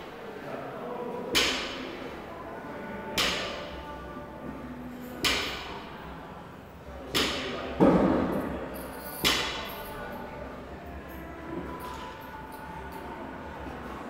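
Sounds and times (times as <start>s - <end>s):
gym equipment thudding with echo: 1.3s - 1.9s, 5.2s - 5.8s, 9.2s - 9.8s.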